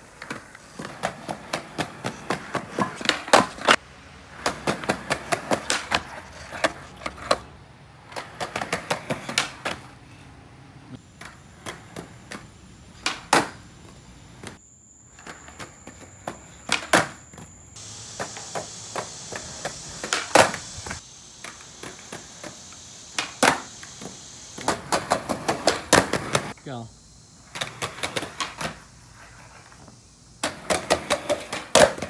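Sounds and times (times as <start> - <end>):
skateboard wheels rolling: 0.0 - 26.6, 27.4 - 32.0
skateboard clacks on concrete: 0.1 - 10.0, 11.0 - 26.6, 27.5 - 32.0.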